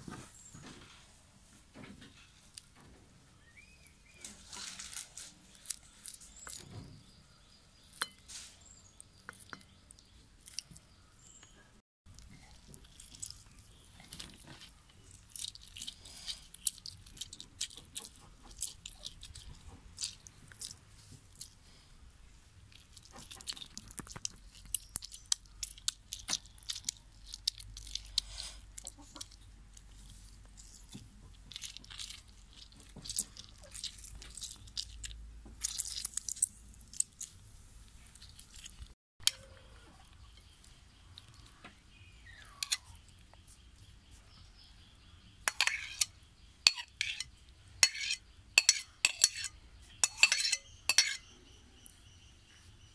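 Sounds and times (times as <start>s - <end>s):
lime squeezed wet crackles: 12.1s - 21.7s, 22.6s - 39.0s.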